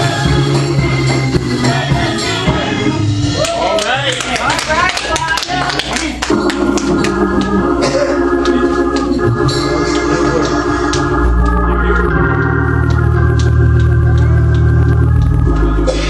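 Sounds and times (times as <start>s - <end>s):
church organ chords: 6.2s - 16.0s.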